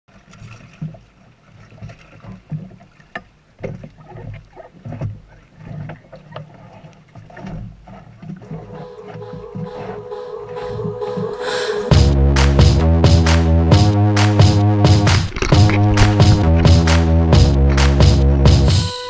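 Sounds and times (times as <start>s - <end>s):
low wavering rumble: 14.6s - 18.7s.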